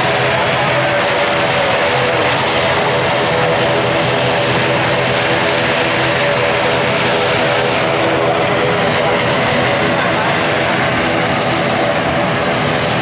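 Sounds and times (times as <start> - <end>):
turboprop engines roaring: 0.0 - 13.0.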